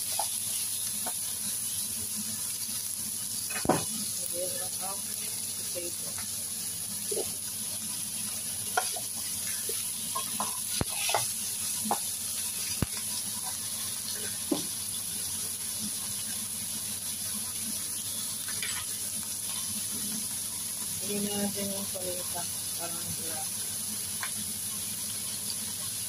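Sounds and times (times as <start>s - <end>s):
meat and onion sizzling in oil: 0.0s - 26.0s
spatula knocking against pan: 8.7s - 9.0s.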